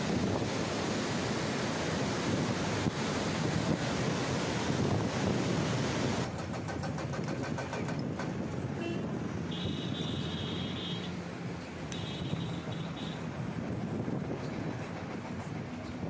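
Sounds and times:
river rushing: 0:00.0 - 0:06.4
gusting wind: 0:00.0 - 0:16.0.

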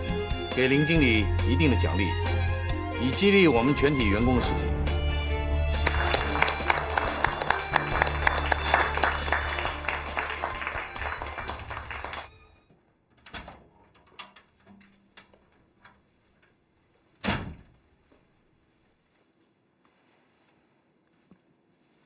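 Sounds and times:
small group applauding: 0:05.7 - 0:12.6
faint knocks and steps: 0:12.7 - 0:22.0.

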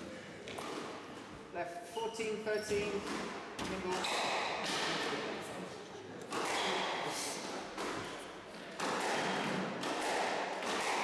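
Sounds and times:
squash ball thuds echoing: 0:02.7 - 0:05.4, 0:06.2 - 0:11.0.

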